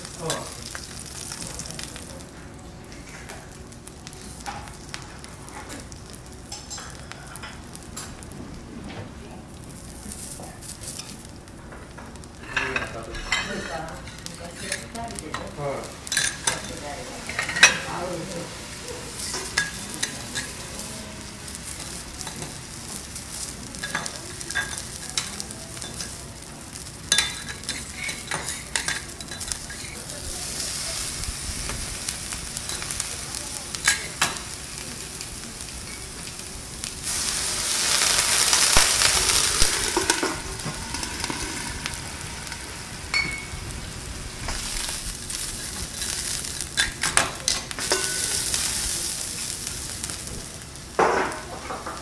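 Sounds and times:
vegetables sizzling on griddle: 0.0 - 52.0
metal spatulas scraping griddle: 37.0 - 43.5.

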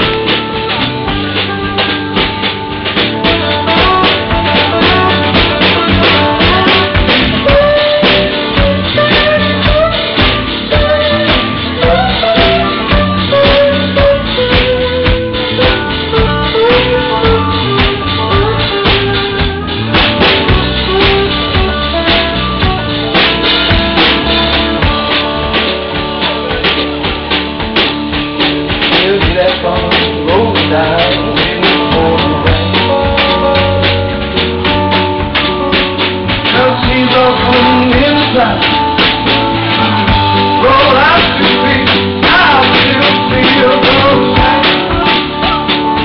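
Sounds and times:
drum kit steady beat: 0.0 - 46.0
slide guitar playing blues: 0.0 - 46.0.

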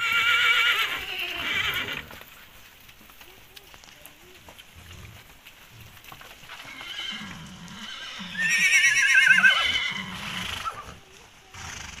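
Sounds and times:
horse whinnying: 0.0 - 2.2, 6.6 - 12.0.

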